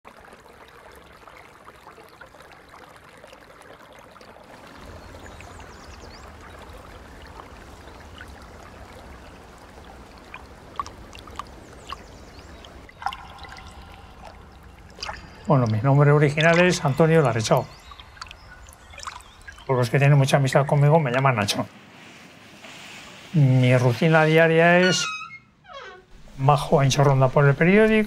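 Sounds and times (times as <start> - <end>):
water trickling: 0.0 - 28.0.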